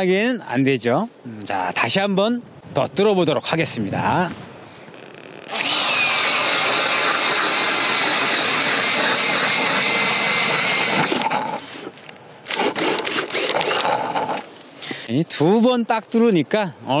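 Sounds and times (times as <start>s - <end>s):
cordless drill motor whine: 5.0s - 11.6s, 12.5s - 14.4s
auger blades cutting ice: 5.5s - 11.6s.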